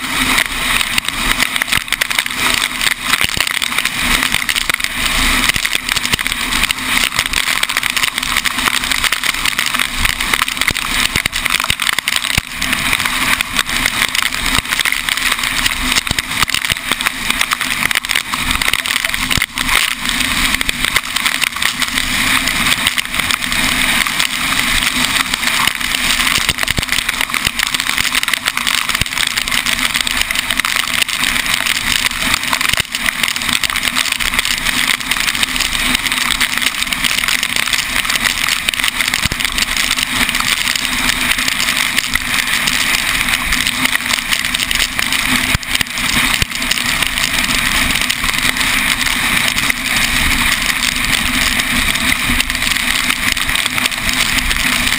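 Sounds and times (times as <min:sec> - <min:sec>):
raindrops ticking on camera: 0:00.0 - 0:54.9.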